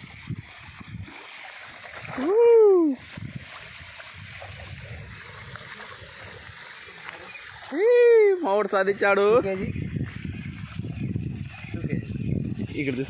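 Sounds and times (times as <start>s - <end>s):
water splashing and lapping: 0.0s - 13.0s
loud drawn-out whoop: 2.2s - 3.0s.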